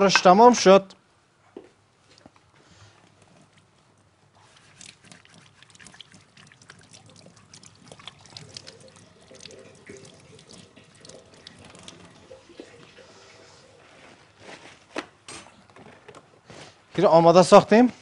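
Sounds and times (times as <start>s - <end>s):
water splashing: 4.4s - 14.0s
water running into a sink: 4.9s - 13.9s.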